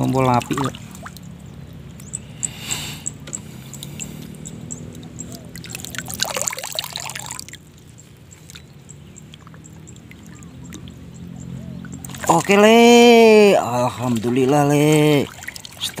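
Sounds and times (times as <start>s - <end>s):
water sloshing around wading person: 0.0s - 16.0s.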